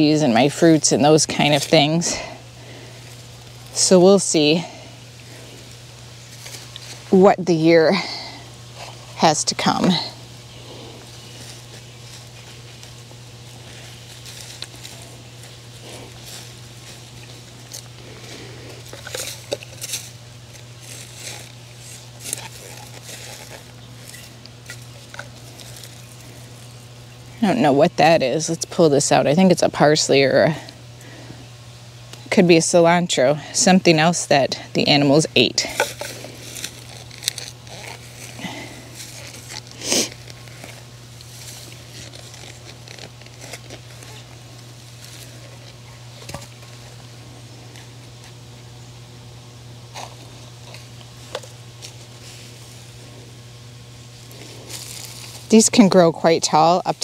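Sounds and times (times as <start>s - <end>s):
hand tool scraping in dry soil: 8.7s - 26.7s, 35.5s - 47.0s, 49.9s - 53.2s, 54.2s - 57.0s
crunches and rustles: 10.7s - 26.8s, 35.6s - 48.4s.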